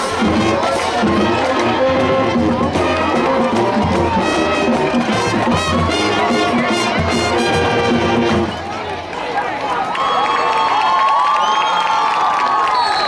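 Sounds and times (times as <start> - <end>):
steady drum beat: 0.0 - 8.6
marching band brass playing: 0.0 - 8.8
crowd noise: 0.0 - 13.0.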